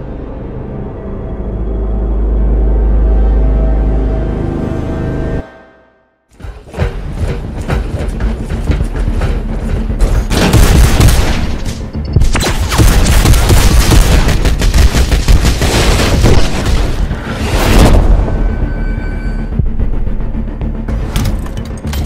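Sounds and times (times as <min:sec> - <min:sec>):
film score music: 0:00.0 - 0:22.0
rapid gunfire: 0:10.2 - 0:17.1.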